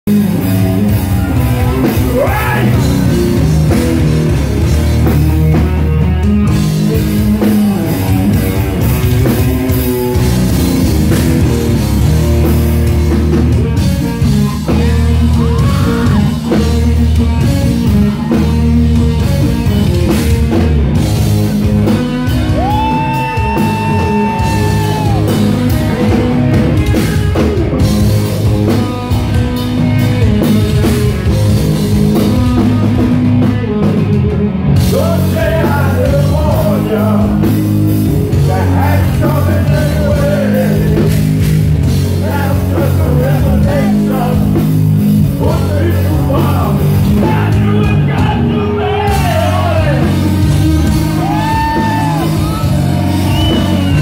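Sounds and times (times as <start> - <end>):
bass guitar: 0.0 - 54.0
distorted electric guitars: 0.0 - 54.0
drums: 0.0 - 54.0
man singing: 1.7 - 3.2, 14.1 - 18.5, 34.8 - 37.7, 38.3 - 52.6.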